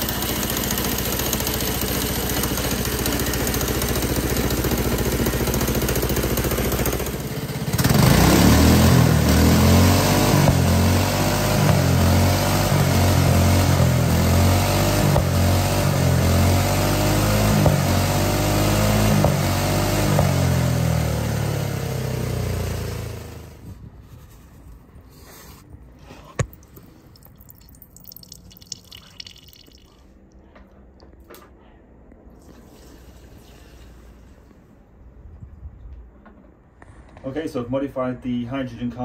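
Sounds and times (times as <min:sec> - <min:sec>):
small engine running: 0:00.0 - 0:23.6.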